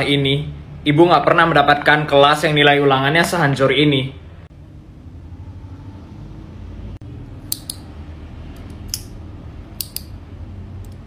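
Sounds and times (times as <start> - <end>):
low background hum: 0.0 - 11.0
ballpoint pen clicking: 7.5 - 7.9, 9.8 - 10.2.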